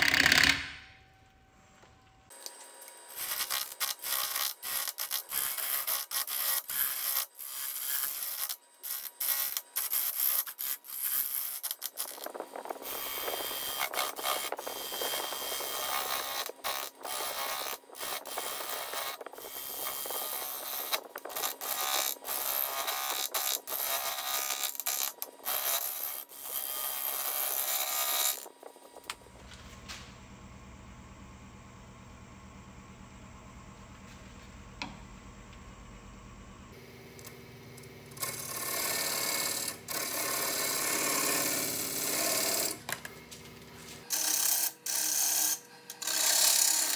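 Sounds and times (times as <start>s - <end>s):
steady motor hum: 0.0s - 46.9s
tool scraping wood on lathe: 3.1s - 29.0s, 38.2s - 42.9s, 43.9s - 46.9s.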